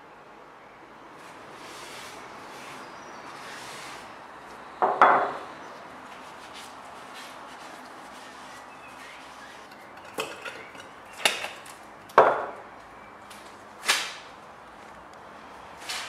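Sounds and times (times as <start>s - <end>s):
tools knocking on wooden workbench: 4.8s - 5.4s.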